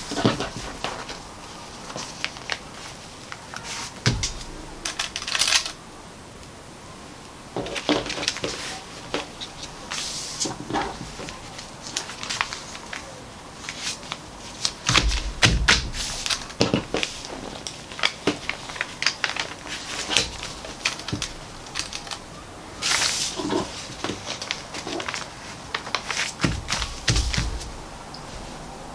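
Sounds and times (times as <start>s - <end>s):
paper rustling and crinkling: 0.0s - 5.8s, 7.5s - 28.7s
dull bump: 4.0s - 4.8s, 26.4s - 28.0s.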